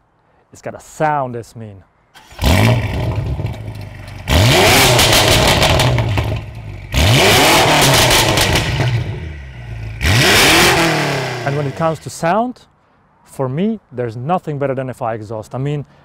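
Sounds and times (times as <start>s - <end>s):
car engine revving: 2.2s - 12.0s.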